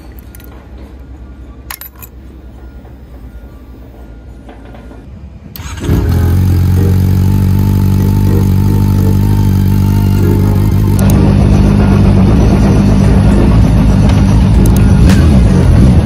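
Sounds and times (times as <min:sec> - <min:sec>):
motorcycle engine starting and idling: 0:05.5 - 0:16.0.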